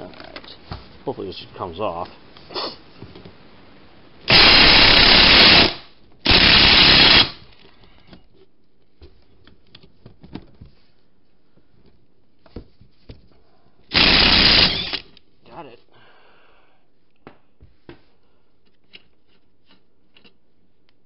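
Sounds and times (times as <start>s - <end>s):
impact wrench hammering: 4.3s - 7.4s, 13.9s - 15.0s.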